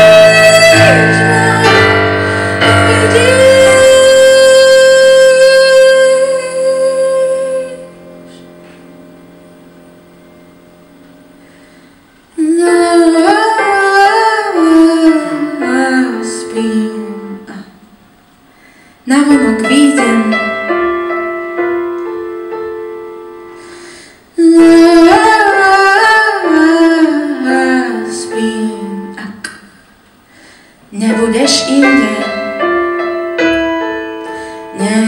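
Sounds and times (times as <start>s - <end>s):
woman singing: 0.0s - 8.2s, 12.3s - 17.8s, 19.1s - 20.7s, 24.4s - 29.6s, 30.9s - 32.7s, 34.7s - 35.0s
keyboard chords: 0.0s - 18.0s, 19.1s - 35.0s.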